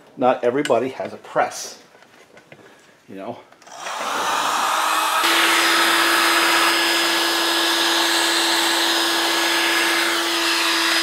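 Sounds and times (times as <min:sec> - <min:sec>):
heat gun blowing: 0:03.6 - 0:11.0.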